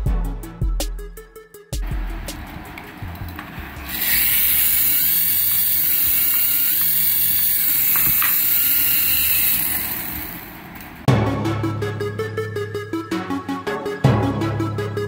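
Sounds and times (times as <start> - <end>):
toy helicopter motor whirring: 3.2 - 11.1.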